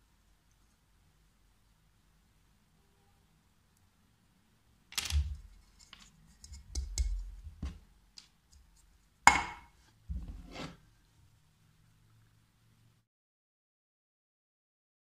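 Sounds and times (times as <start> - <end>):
objects clicking and knocking on table: 4.9 - 8.7.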